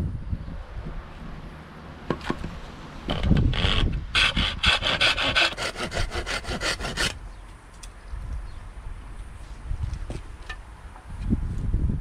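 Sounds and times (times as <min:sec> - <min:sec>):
handsaw cutting wood: 0:03.4 - 0:07.2.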